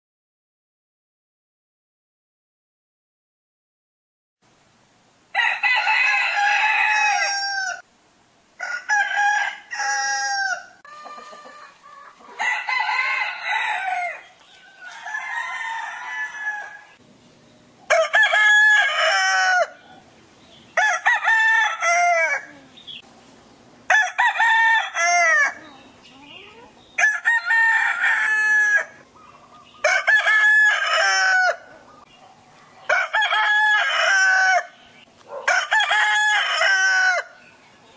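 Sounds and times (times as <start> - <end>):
roosters crowing: 5.3 - 7.9, 8.6 - 17.0, 17.8 - 23.0, 23.8 - 25.7, 27.0 - 32.1, 32.7 - 37.6.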